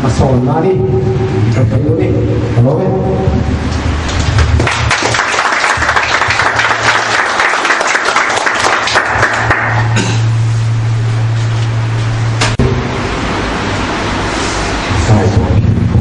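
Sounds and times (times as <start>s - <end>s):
steady low hum: 0.0s - 16.0s
audience applauding: 4.1s - 10.1s.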